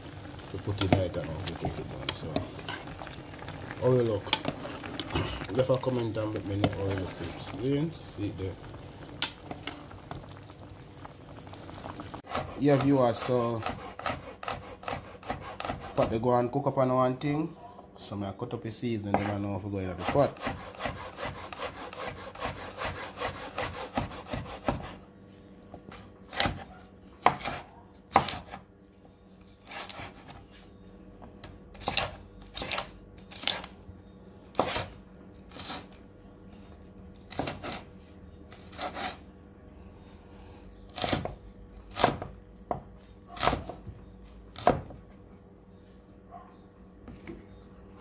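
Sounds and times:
knife slicing vegetables: 12.3 - 16.2, 19.1 - 25.0, 25.9 - 28.6, 29.6 - 30.4, 38.5 - 39.2, 43.3 - 43.8.

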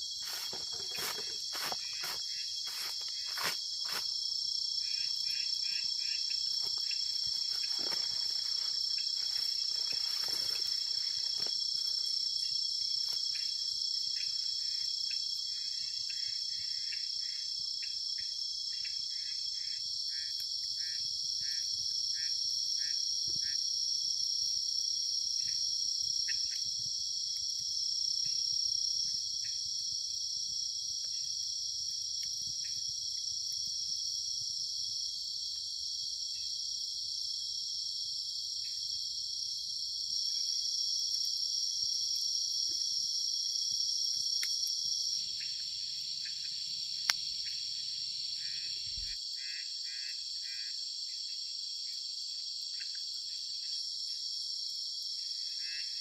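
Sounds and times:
crickets shrilling: 0.0 - 14.6
low pulsing insect chirps: 0.0 - 56.0.

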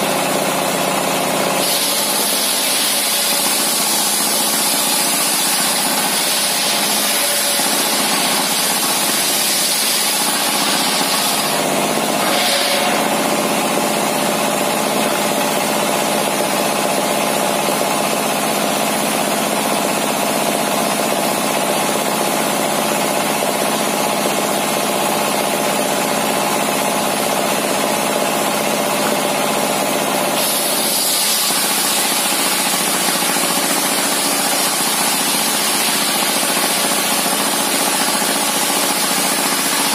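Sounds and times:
diesel engine running: 0.0 - 39.9
saw blade hissing through wood: 1.6 - 8.1, 12.2 - 13.1, 30.4 - 33.7.

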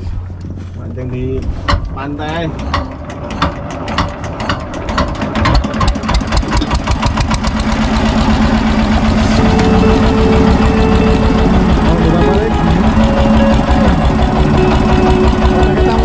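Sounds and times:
boat engine speeding up: 2.4 - 16.0
steady hum: 7.2 - 16.0.

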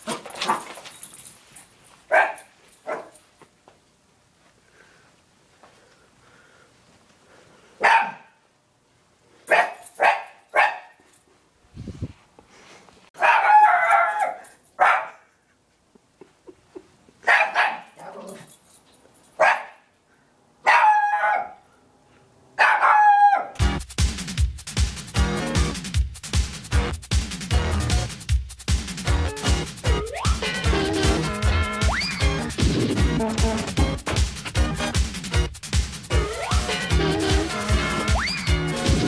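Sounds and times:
small dog barking: 2.1 - 3.2, 7.8 - 8.4, 9.5 - 11.0, 13.2 - 15.3, 17.2 - 18.5, 19.4 - 19.9, 20.6 - 21.6, 22.6 - 23.6
music with steady beat: 23.6 - 39.0.

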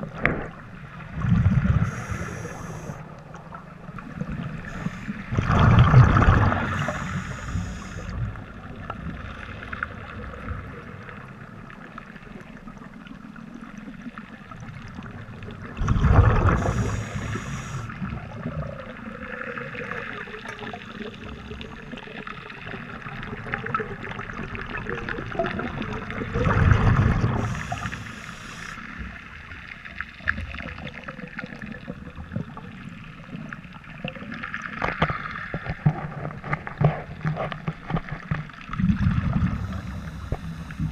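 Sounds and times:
exhaled bubbles rushing: 0.0 - 2.7, 3.7 - 11.2, 14.6 - 28.2, 38.3 - 40.9
steady underwater hiss: 0.0 - 40.9.

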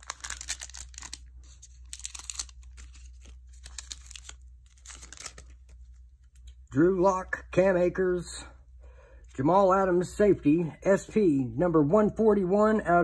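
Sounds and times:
foil wrapper tearing and crinkling: 0.0 - 6.5
cards being handled: 0.0 - 6.7.

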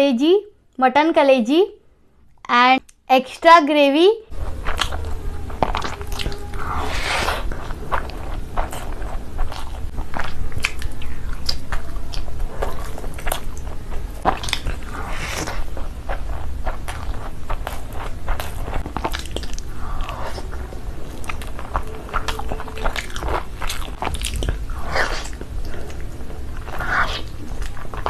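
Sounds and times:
squishy eating sounds: 4.3 - 28.0
wet chewing: 4.3 - 28.0.

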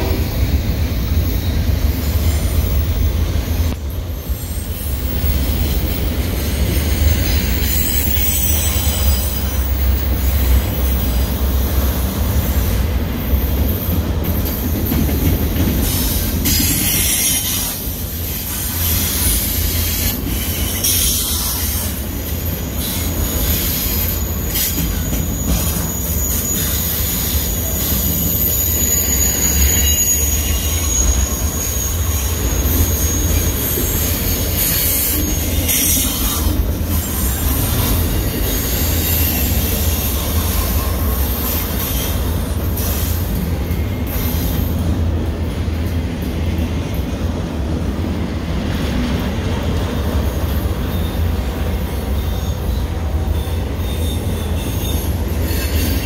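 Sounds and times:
freight train rumbling past: 0.0 - 56.0
high wheel squeal: 1.1 - 14.0, 15.8 - 44.8, 50.2 - 56.0.

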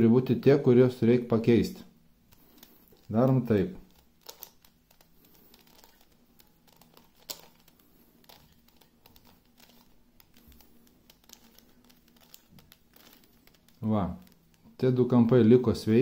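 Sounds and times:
plastic puzzle clicking and rattling: 2.3 - 14.6.

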